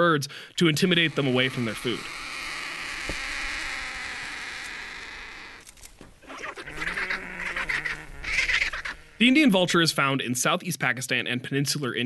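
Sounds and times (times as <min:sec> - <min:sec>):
vultures calling harshly: 0:00.0 - 0:09.7
steady hissing rush: 0:00.6 - 0:05.1.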